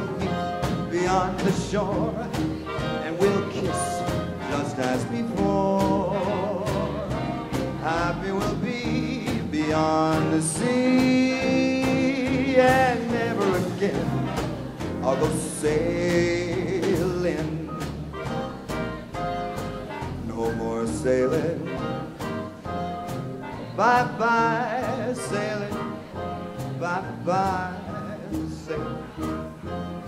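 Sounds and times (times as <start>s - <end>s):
swing big band playing: 0.0s - 30.0s.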